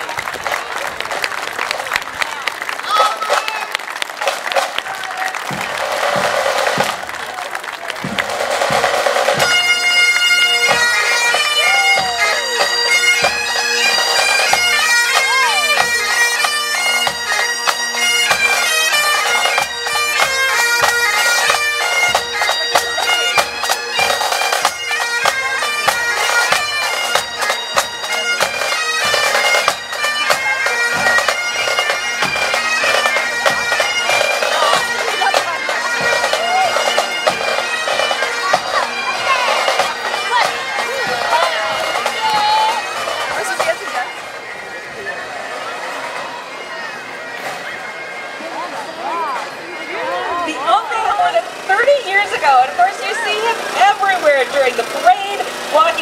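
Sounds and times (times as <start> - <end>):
drums beating: 0.0 - 56.0
bagpipes playing a tune: 5.5 - 7.2, 8.0 - 56.0.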